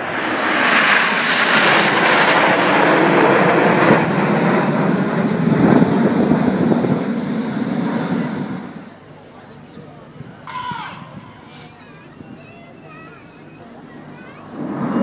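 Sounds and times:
jets flying past overhead: 0:00.0 - 0:09.1, 0:13.7 - 0:15.0.

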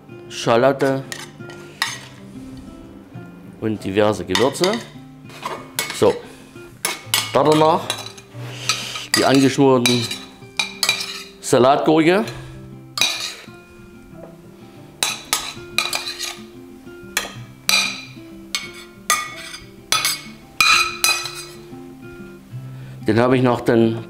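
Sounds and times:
metal spoon clinking on steel pan: 0:01.1 - 0:02.1, 0:04.3 - 0:06.2, 0:06.8 - 0:08.3, 0:09.1 - 0:11.4, 0:13.0 - 0:13.5, 0:15.0 - 0:16.4, 0:17.2 - 0:21.6.

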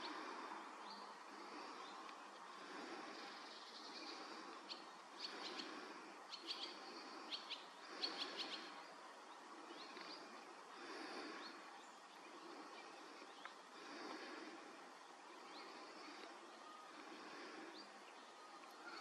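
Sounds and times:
faint background noise: 0:00.0 - 0:19.0
bird chirping: 0:00.8 - 0:10.4.

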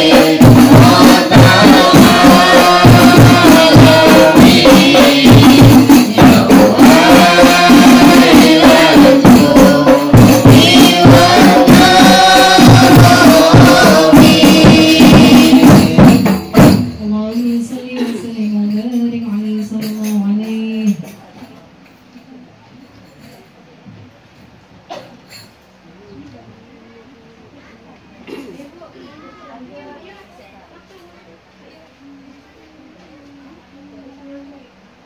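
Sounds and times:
women singing together: 0:00.0 - 0:21.0
frame drums beating: 0:00.0 - 0:21.6.

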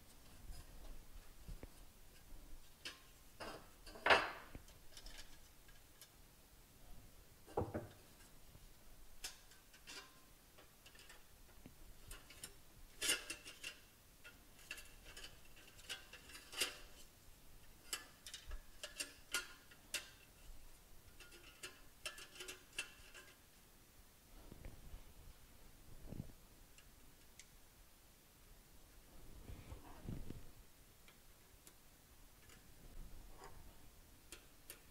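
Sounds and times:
plastic fan and metal housing clicking: 0:17.9 - 0:20.3, 0:21.1 - 0:23.4.

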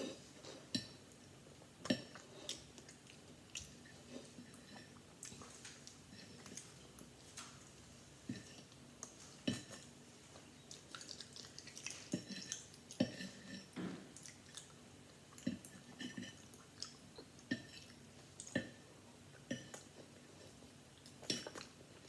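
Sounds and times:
wet chewing: 0:10.6 - 0:18.7.

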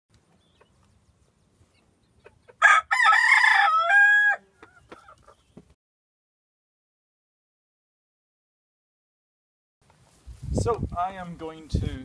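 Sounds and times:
rooster crowing: 0:02.6 - 0:04.5.

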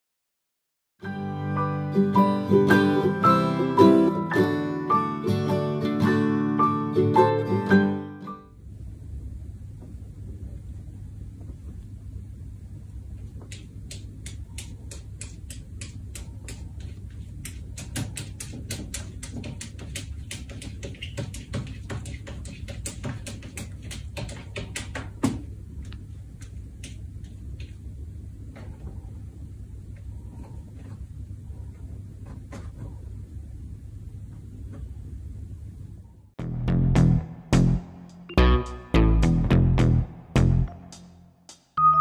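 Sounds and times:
steady low hum: 0:08.5 - 0:41.8.

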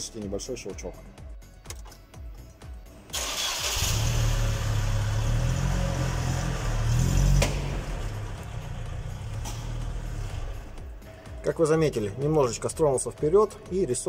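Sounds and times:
van engine running: 0:03.2 - 0:11.0.

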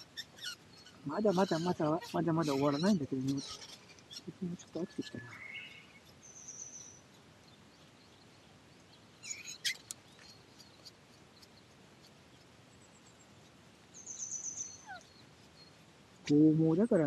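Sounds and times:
high bird trill: 0:00.0 - 0:07.1, 0:09.2 - 0:12.2, 0:14.0 - 0:15.8
background hiss: 0:00.0 - 0:17.0
birds chirping: 0:00.0 - 0:17.0.

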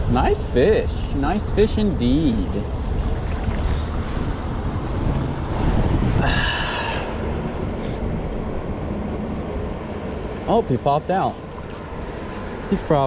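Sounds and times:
wind rumbling on microphone: 0:00.0 - 0:13.0
creek water rushing: 0:02.7 - 0:07.5, 0:11.3 - 0:12.8.

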